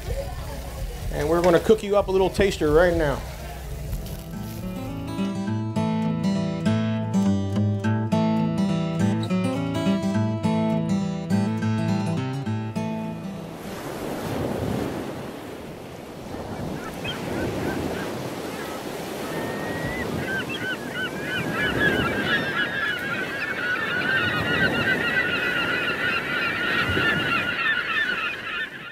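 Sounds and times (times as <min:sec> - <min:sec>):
surf washing in: 0:13.3 - 0:28.9
flock of birds calling: 0:16.2 - 0:28.9.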